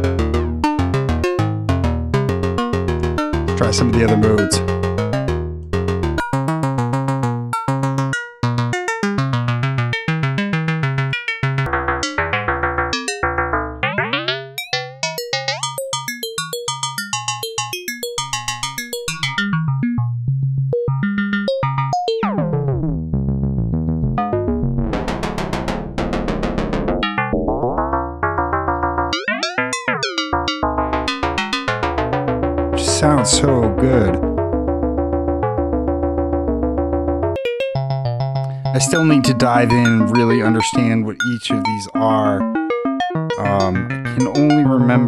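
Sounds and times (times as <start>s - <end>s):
sequenced synth notes: 20.8s - 45.0s.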